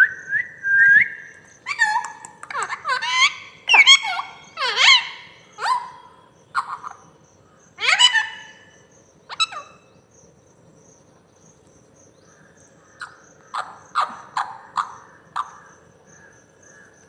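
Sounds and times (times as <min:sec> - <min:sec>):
parakeet calling: 0:01.0 - 0:10.0, 0:13.0 - 0:16.2.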